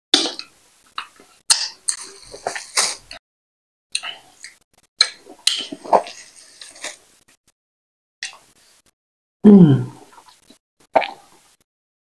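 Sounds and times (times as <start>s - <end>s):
wet chewing and mouth sounds: 4.0s - 7.0s, 10.1s - 11.6s
plastic wrap rustling: 5.8s - 7.0s.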